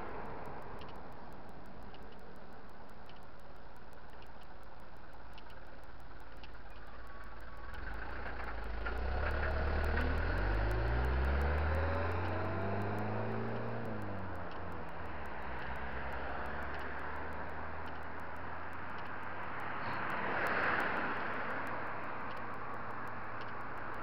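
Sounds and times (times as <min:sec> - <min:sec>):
truck engine passing by: 0:07.8 - 0:14.0.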